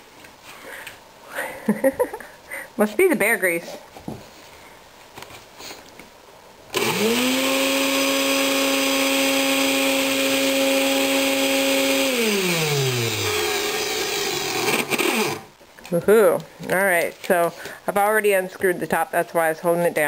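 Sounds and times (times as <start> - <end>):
vacuum motor whirring: 6.7 - 15.5.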